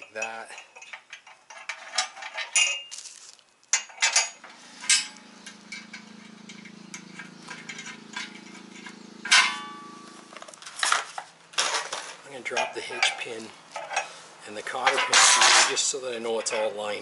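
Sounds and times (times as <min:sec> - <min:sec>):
bolts and nuts clinking: 0:00.0 - 0:03.0, 0:03.7 - 0:17.0
bubble wrap crinkling: 0:02.9 - 0:03.7
steady low hum: 0:04.4 - 0:10.8.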